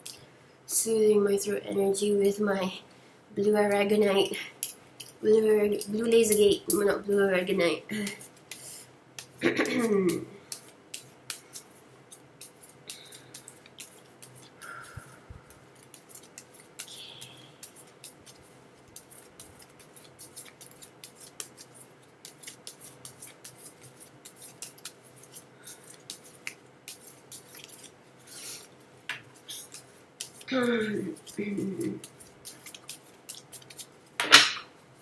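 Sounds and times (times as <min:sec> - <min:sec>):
cards being shuffled: 0:08.0 - 0:34.4.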